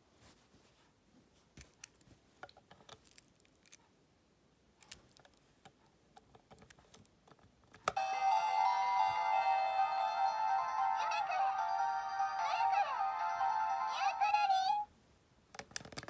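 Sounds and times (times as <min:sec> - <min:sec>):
toy electronic melody: 0:08.0 - 0:14.5.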